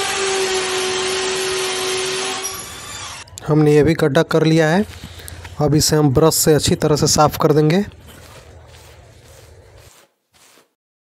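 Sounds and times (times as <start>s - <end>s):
electric drill boring into plastic: 0.0s - 3.3s.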